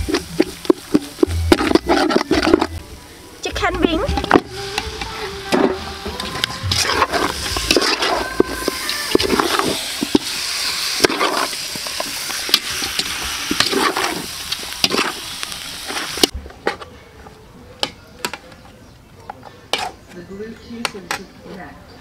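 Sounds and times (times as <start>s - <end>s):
food sizzling in oil: 0.0s - 16.4s
spatula scraping a pot: 1.5s - 2.8s, 5.5s - 10.3s.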